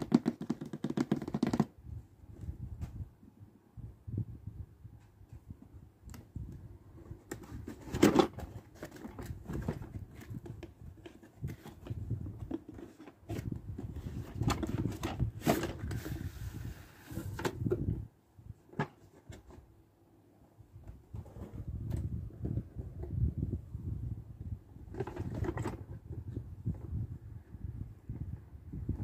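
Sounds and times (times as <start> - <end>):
cardboard rubbing and scraping: 0.0 - 1.7, 11.0 - 17.7
taps and knocks on cardboard: 0.0 - 1.7.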